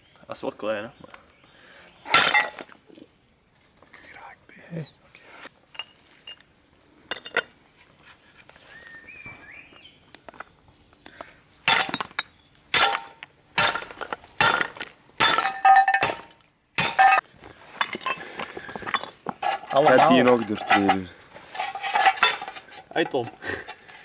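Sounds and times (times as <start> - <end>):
ceramic tiles smashing: 2.1 - 2.8, 11.6 - 22.7.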